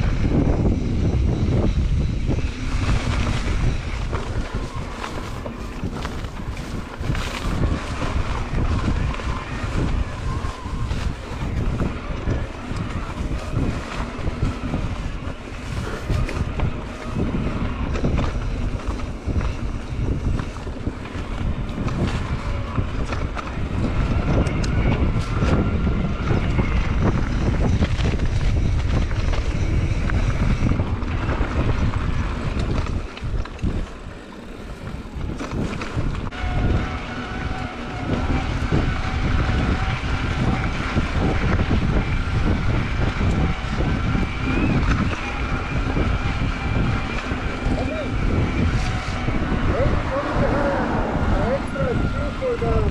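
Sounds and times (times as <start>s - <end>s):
bike rolling on dirt trail: 0.0s - 52.9s
wind buffeting microphone: 0.0s - 52.9s.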